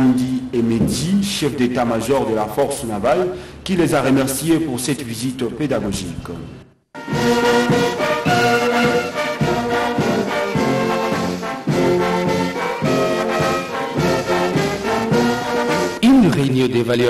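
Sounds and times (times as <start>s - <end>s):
brass instrumental music: 7.0s - 16.4s.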